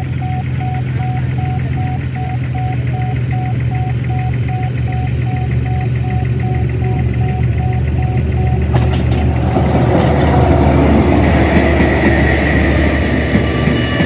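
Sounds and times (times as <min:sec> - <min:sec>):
level-crossing alarm beeping: 0:00.0 - 0:14.0
low rumble: 0:02.6 - 0:13.8.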